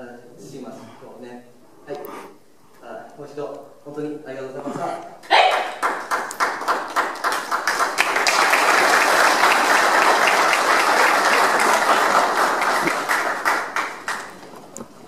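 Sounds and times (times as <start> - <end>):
group applauding: 5.2 - 14.8.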